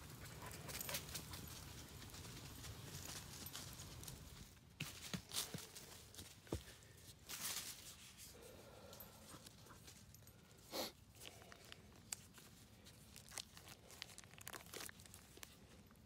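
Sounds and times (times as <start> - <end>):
small clicks and rustles: 0.2 - 5.6
plastic tearing and crinkling: 11.4 - 15.9.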